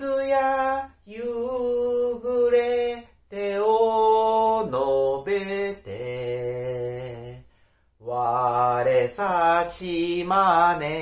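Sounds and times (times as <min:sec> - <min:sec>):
man singing unaccompanied: 0:00.0 - 0:11.0
singer breathing: 0:07.4 - 0:08.0.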